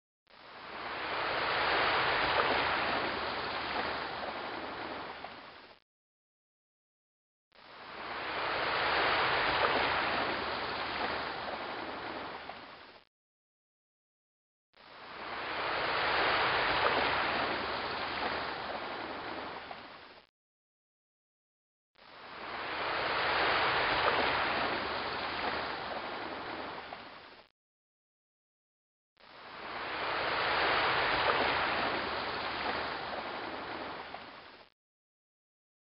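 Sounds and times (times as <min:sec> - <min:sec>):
rushing water: 0:00.4 - 0:05.8, 0:07.6 - 0:13.0, 0:14.8 - 0:20.3, 0:22.0 - 0:27.5, 0:29.2 - 0:34.7.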